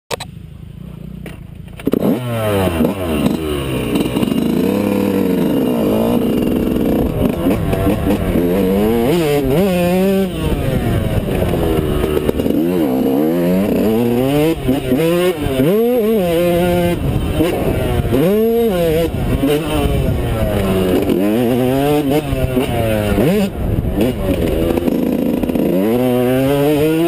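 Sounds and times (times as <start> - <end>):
dirt bike engine revving: 0.7 - 27.0.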